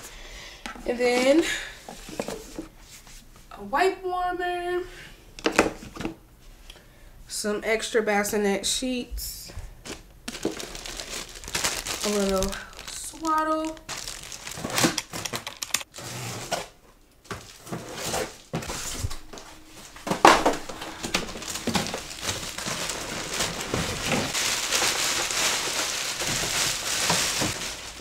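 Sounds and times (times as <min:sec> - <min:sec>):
packaging crinkling and rustling: 0:09.8 - 0:28.0
fabric rustling: 0:18.7 - 0:28.0.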